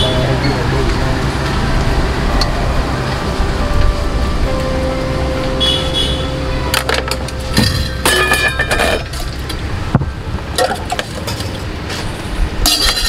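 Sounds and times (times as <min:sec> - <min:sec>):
street traffic rumble: 0:00.0 - 0:13.0
spoons and plates clinking: 0:06.7 - 0:09.6, 0:12.6 - 0:13.0.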